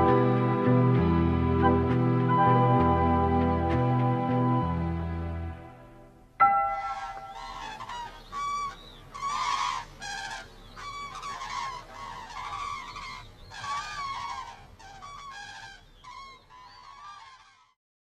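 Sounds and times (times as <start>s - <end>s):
cranes trumpeting calls: 6.4s - 17.8s.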